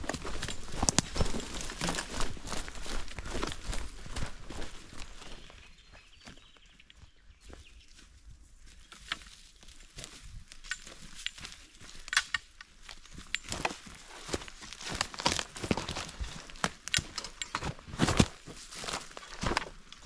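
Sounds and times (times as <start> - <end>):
boots crunching on dry leaves: 0.0 - 5.6, 12.7 - 20.0.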